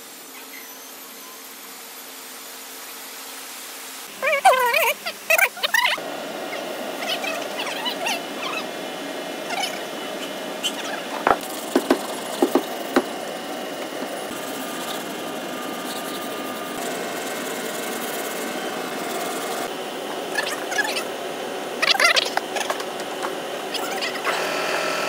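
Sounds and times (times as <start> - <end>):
sanding block scraping: 11.0 - 13.2, 13.8 - 19.7
sharp taps: 11.2 - 13.1.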